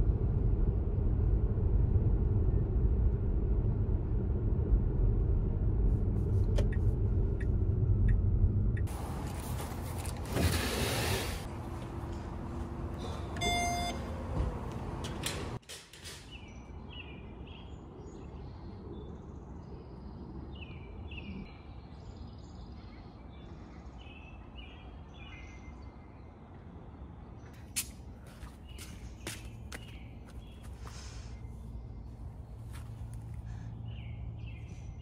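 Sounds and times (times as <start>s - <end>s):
low rumble: 0.0s - 8.9s
small birds chirping: 16.3s - 35.0s.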